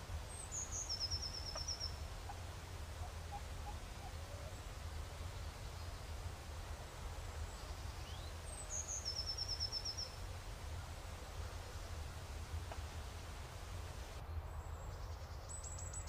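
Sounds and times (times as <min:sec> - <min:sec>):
songbird trilling: 0:00.3 - 0:02.0, 0:08.0 - 0:10.2.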